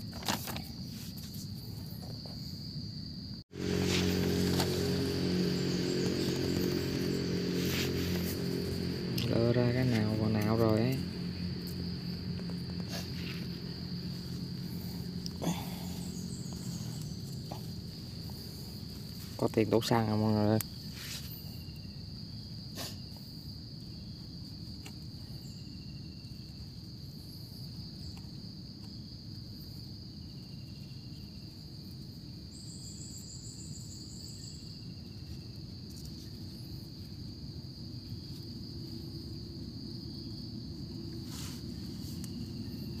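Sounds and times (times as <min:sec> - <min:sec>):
insects droning: 0:00.0 - 0:43.0
low steady rumble: 0:03.5 - 0:20.0.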